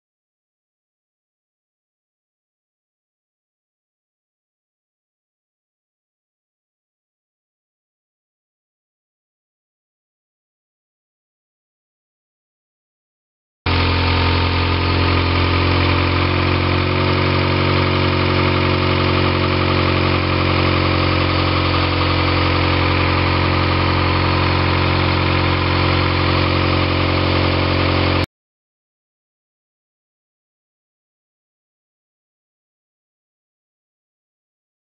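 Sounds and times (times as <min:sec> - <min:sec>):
engine idling: 0:13.7 - 0:28.3.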